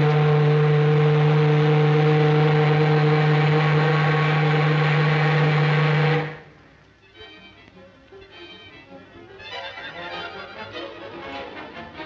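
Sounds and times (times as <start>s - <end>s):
ship's horn low blast: 0.0s - 6.8s.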